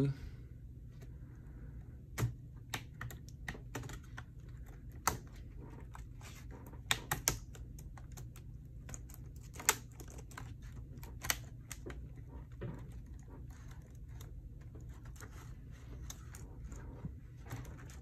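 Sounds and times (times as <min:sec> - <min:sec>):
laptop keyboard clicking: 0:02.2 - 0:12.1.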